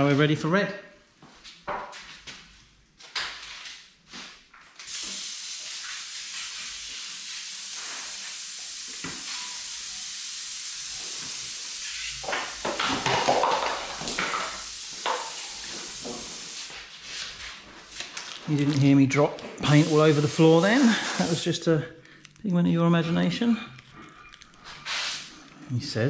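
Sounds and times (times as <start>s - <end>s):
rushing hiss of air: 4.9s - 12.2s, 14.5s - 16.8s, 19.6s - 21.5s.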